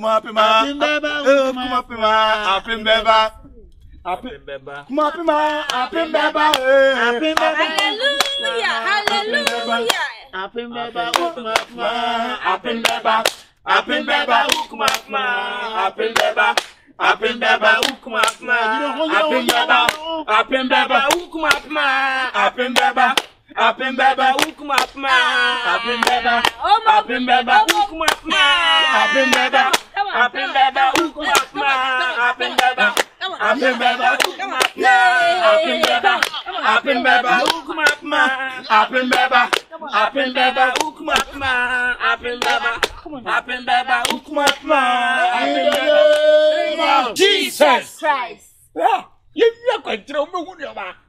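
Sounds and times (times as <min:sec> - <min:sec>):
group of people singing: 0:00.0 - 0:03.5, 0:04.1 - 0:48.0
hand claps: 0:06.5 - 0:06.7, 0:07.4 - 0:08.4, 0:09.0 - 0:10.0, 0:11.1 - 0:11.8, 0:12.8 - 0:13.5, 0:14.5 - 0:15.1, 0:16.2 - 0:16.8, 0:17.8 - 0:18.4, 0:19.5 - 0:20.0, 0:21.1 - 0:21.7, 0:22.8 - 0:23.4, 0:24.4 - 0:25.0, 0:26.0 - 0:26.6, 0:27.7 - 0:28.3, 0:29.2 - 0:29.9, 0:30.9 - 0:31.6, 0:32.5 - 0:33.2, 0:34.1 - 0:34.8, 0:35.7 - 0:36.4, 0:37.3 - 0:38.1, 0:39.0 - 0:39.7, 0:40.7 - 0:41.4, 0:42.4 - 0:43.0, 0:44.0 - 0:44.7.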